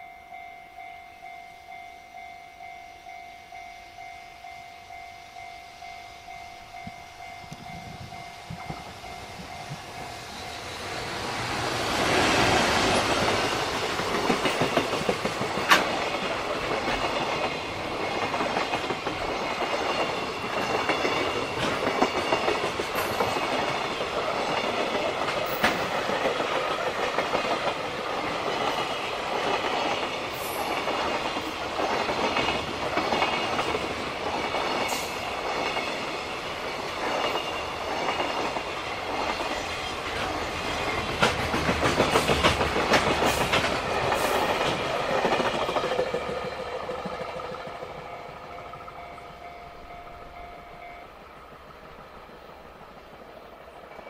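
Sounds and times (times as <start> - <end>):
train wheels clattering over rail joints: 10.8 - 48.0.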